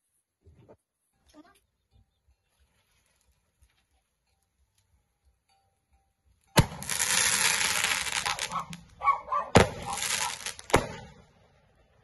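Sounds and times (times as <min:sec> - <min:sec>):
firework bangs: 0:06.6 - 0:08.9, 0:09.5 - 0:11.3
firework hissing: 0:06.6 - 0:08.9, 0:09.6 - 0:11.1.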